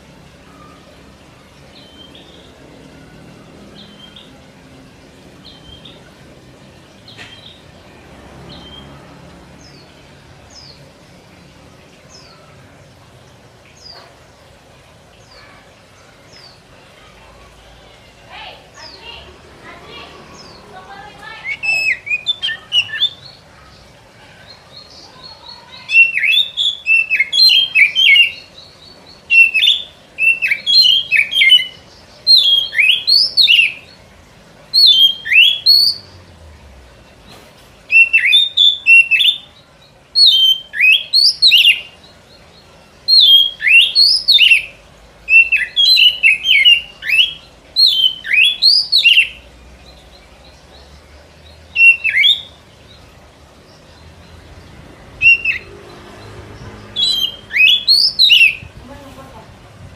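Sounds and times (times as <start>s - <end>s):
bird singing whistled notes: 21.4s - 23.3s, 25.2s - 28.5s, 29.3s - 34.0s, 34.8s - 36.1s, 37.9s - 39.5s, 40.2s - 42.0s, 43.1s - 49.4s, 51.7s - 52.6s, 55.2s - 55.7s, 57.0s - 58.8s.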